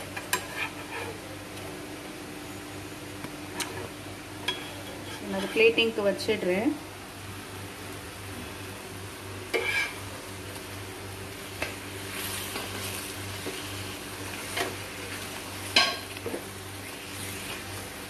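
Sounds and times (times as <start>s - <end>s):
caramel bubbling and sizzling: 7.5s - 18.0s
spatula knocking and scraping pan: 9.5s - 10.0s.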